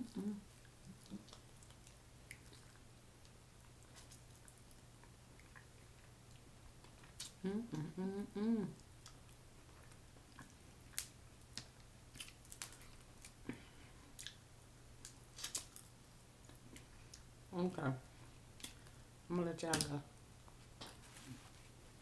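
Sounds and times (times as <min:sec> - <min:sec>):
person humming: 0:00.0 - 0:00.5, 0:07.4 - 0:08.8
chewing and sucking: 0:00.1 - 0:13.0
crab shell cracking: 0:10.9 - 0:13.4, 0:15.0 - 0:15.9.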